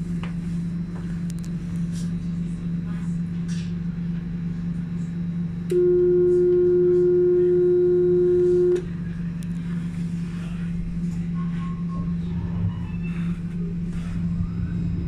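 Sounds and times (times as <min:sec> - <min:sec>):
low hum of tram equipment: 0:00.0 - 0:15.0
steady electronic warning tone: 0:05.7 - 0:09.1.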